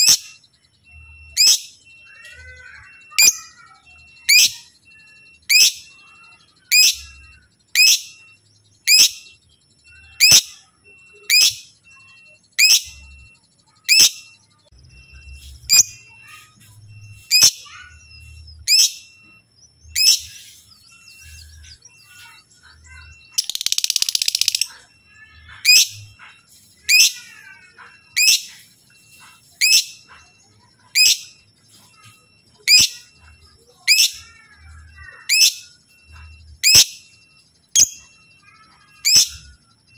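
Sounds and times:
bird scratchy chatter: 0:15.2 - 0:18.8, 0:19.9 - 0:36.8.

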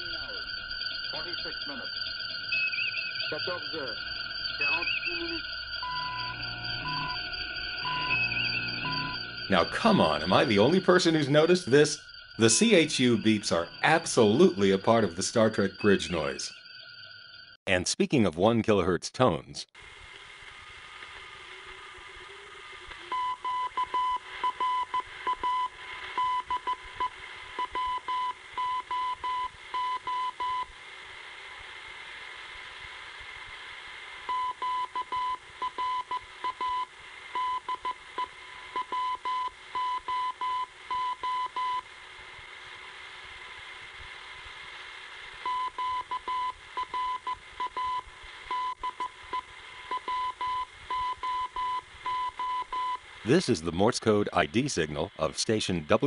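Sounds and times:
radio hiss: 0:00.0 - 0:16.6, 0:17.7 - 0:56.0
morse code tone: 0:04.6 - 0:16.5, 0:38.8 - 0:41.8, 0:45.5 - 0:53.0.

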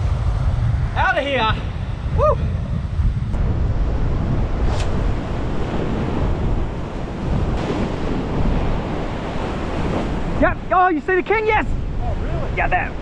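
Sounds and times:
wind buffeting microphone: 0:00.0 - 0:13.0
ocean surf breaking on rocks: 0:03.4 - 0:13.0.

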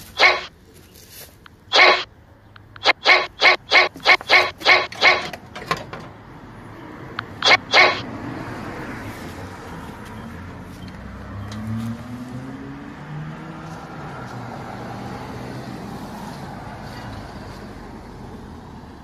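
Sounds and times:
dog barking: 0:00.2 - 0:00.5, 0:01.7 - 0:02.1, 0:02.8 - 0:05.3, 0:07.4 - 0:08.0
steady rushing noise: 0:02.7 - 0:05.3, 0:07.2 - 0:08.1.

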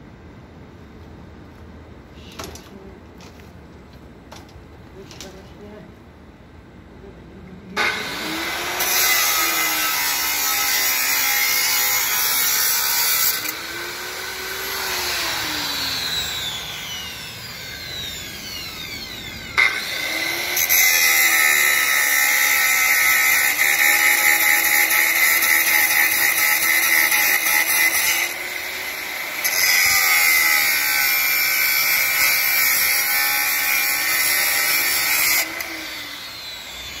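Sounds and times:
angle grinder cutting steel: 0:07.8 - 0:37.0.

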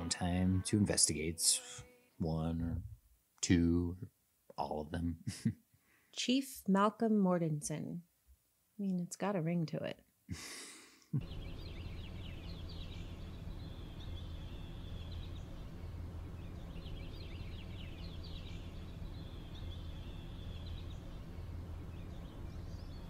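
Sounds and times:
birds chirping and trilling: 0:11.2 - 0:23.0
steady low hum: 0:11.2 - 0:23.0.

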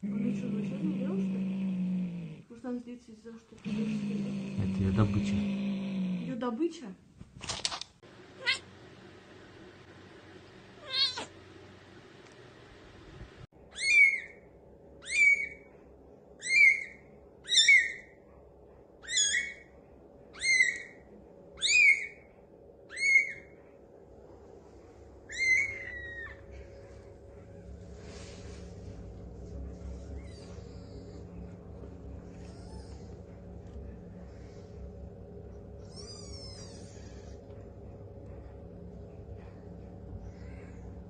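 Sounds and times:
kitten mewing: 0:10.8 - 0:11.3, 0:32.3 - 0:33.2, 0:35.8 - 0:37.4.

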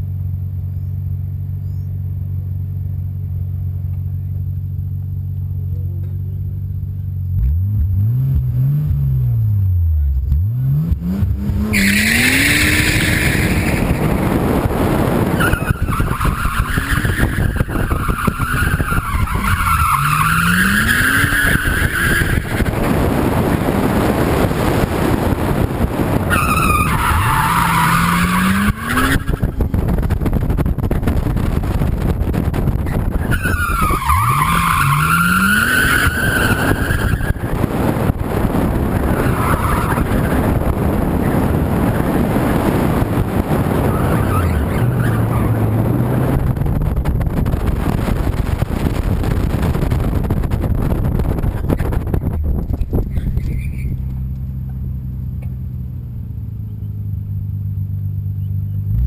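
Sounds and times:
car engine revving: 0:06.0 - 0:59.0
tyres squealing: 0:15.3 - 0:22.8, 0:26.3 - 0:29.7, 0:33.2 - 0:37.7.

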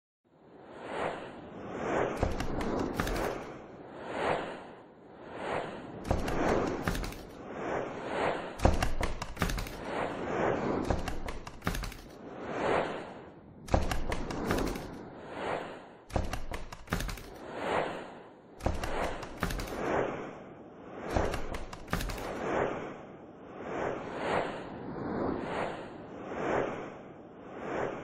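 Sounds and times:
sharp ticks: 0:02.2 - 0:03.4, 0:06.1 - 0:07.4, 0:08.6 - 0:09.8, 0:10.9 - 0:12.2, 0:13.7 - 0:15.0, 0:16.1 - 0:17.4, 0:18.6 - 0:19.8, 0:21.1 - 0:22.4.

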